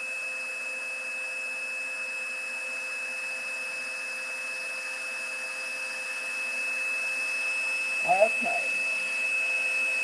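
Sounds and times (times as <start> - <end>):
heat tool blowing air with whine: 0.0 - 10.0.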